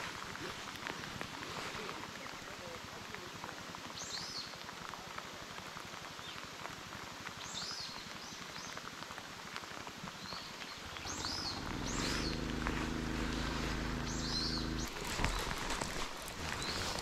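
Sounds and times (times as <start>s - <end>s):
heavy rain on water: 0.0s - 17.0s
low rumble: 10.8s - 17.0s
bird calling swooping notes: 10.9s - 15.0s.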